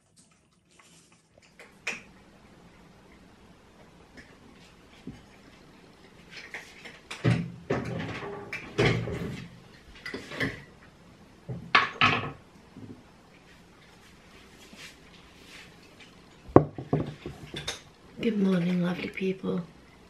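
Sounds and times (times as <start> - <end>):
cupboard door knocks: 16.6 - 17.1.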